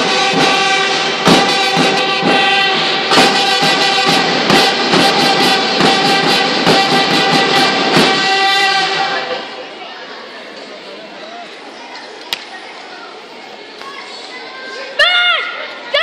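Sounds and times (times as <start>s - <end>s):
drum strikes: 0.0s - 9.2s
band playing: 0.0s - 9.6s.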